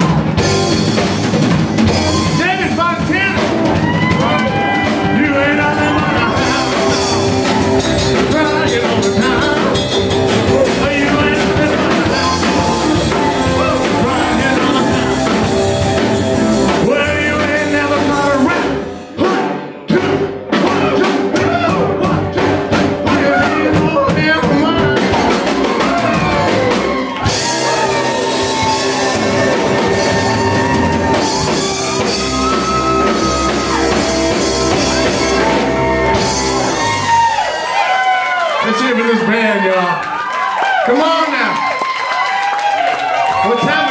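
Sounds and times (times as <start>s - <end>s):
live rock band playing: 0.0s - 39.4s
man singing: 2.2s - 26.3s.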